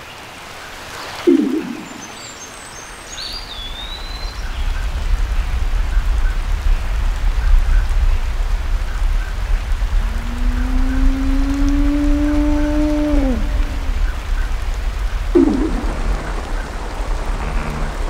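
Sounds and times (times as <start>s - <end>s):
steady hiss: 0.0s - 18.0s
low underwater rumble: 1.3s - 2.2s, 4.6s - 18.0s
gliding bird-like call: 1.3s - 2.3s, 10.2s - 14.3s, 15.4s - 18.0s
high chirps: 1.3s - 2.3s, 15.4s - 18.0s.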